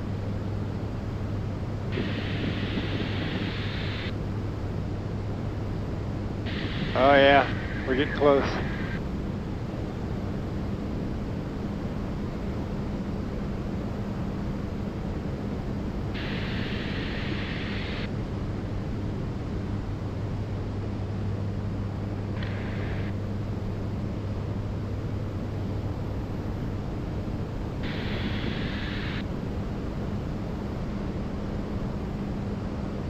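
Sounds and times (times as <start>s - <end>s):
light aircraft engine drone: 0.0s - 33.0s
high-pitched hissy bursts: 2.0s - 4.1s, 6.5s - 9.0s, 16.2s - 18.1s, 27.8s - 29.2s
rush of air: 2.0s - 4.1s, 6.5s - 9.0s, 16.2s - 18.1s, 27.8s - 29.2s.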